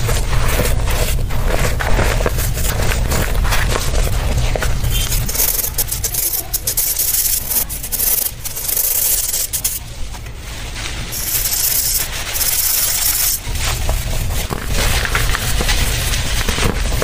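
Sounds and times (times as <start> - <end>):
powder rubbed through sieve: 0.0 - 17.0.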